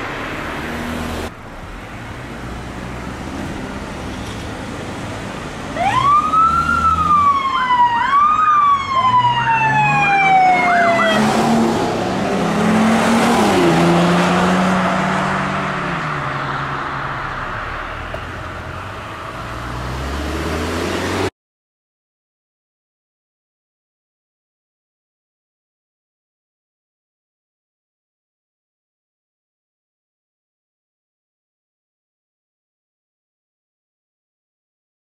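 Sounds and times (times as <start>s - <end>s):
vehicle passing: 0.0s - 7.9s, 8.6s - 21.3s
vehicle approaching: 0.0s - 21.3s
emergency siren wailing: 5.8s - 17.9s.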